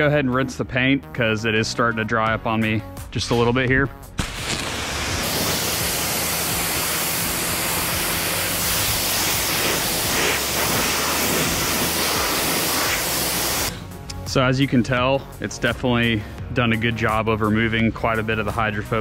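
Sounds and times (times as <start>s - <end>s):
pressure washer spraying water: 4.2s - 13.8s.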